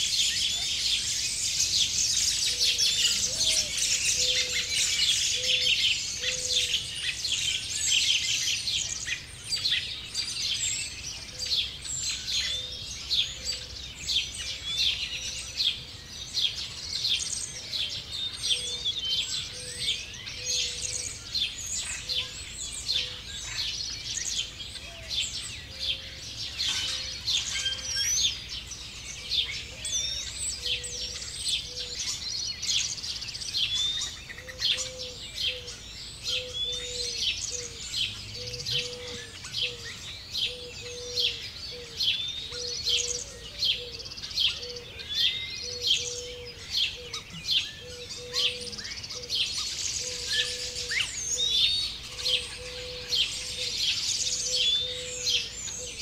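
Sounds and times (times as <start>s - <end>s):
songbirds chirping and singing: 0.0s - 56.0s.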